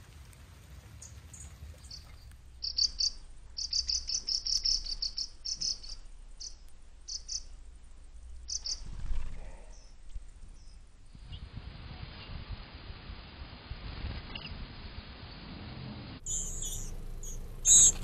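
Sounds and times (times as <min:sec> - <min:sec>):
birds chirping: 0:01.0 - 0:11.4, 0:16.2 - 0:18.0.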